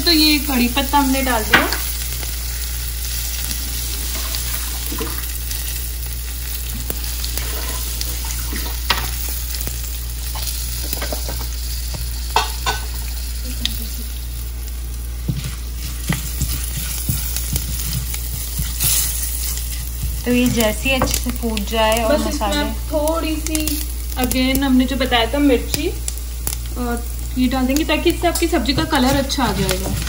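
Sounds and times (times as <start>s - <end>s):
spices sizzling in hot oil: 0.0s - 30.0s
spatula stirring in pan: 15.2s - 21.4s.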